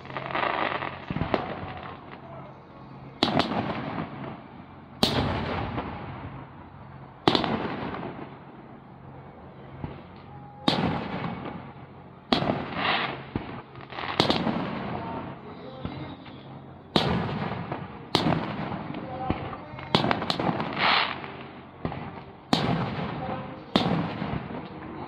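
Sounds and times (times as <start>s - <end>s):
rolling echo: 0.0s - 25.0s
firework shells bursting: 12.3s - 15.1s, 15.8s - 24.8s.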